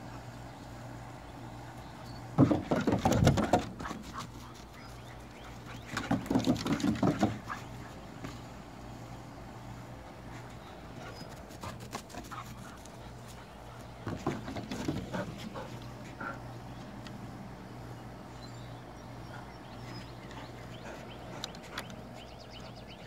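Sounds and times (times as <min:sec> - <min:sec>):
dog claws clicking on wooden deck: 0:02.3 - 0:07.9, 0:13.8 - 0:15.7.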